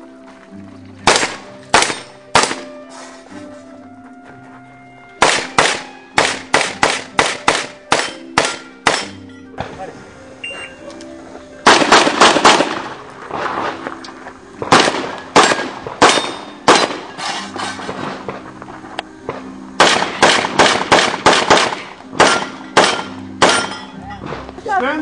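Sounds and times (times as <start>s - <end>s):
handgun shots: 1.0s - 2.8s, 5.2s - 9.2s, 11.7s - 13.0s, 14.7s - 17.1s, 19.8s - 23.9s.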